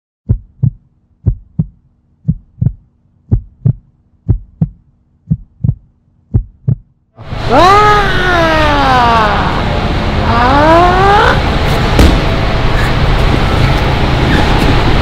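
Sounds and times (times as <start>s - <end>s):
heartbeat thumps: 0.2s - 7.0s
whoosh rising and falling in pitch: 7.2s - 12.7s.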